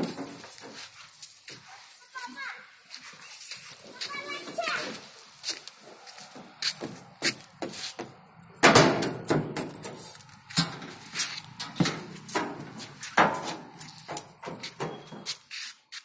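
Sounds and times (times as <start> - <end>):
knocks and rattles on climbing frame: 0.0 - 0.9, 6.3 - 15.4.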